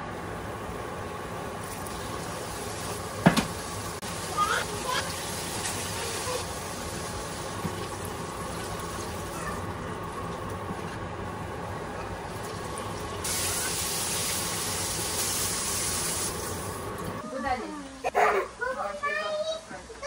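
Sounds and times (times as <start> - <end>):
chicken sizzling in oil: 0.4 - 10.2, 11.8 - 17.0.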